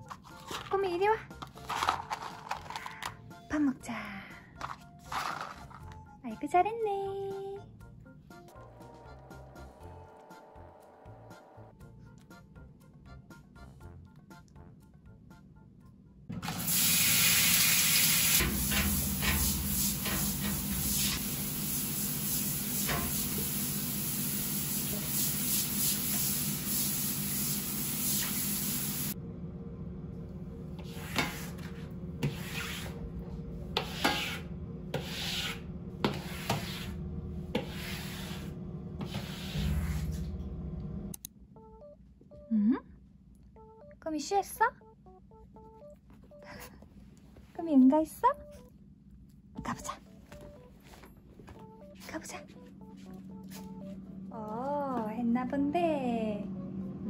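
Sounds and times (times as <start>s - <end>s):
water spraying on tiled floor: 16.4s - 29.2s
squeegee scraping wet tiles: 30.8s - 33.0s, 33.8s - 40.2s.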